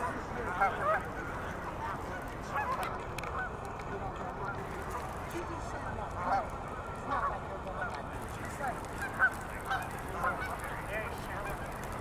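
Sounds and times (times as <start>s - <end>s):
low steady background rumble: 0.0s - 12.0s
geese honking: 0.4s - 3.6s, 7.1s - 11.8s.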